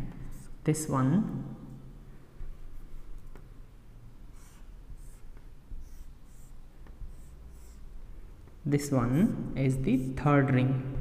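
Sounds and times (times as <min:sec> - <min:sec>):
marker scratching on whiteboard: 0:00.1 - 0:00.7, 0:04.3 - 0:08.0, 0:09.2 - 0:10.2.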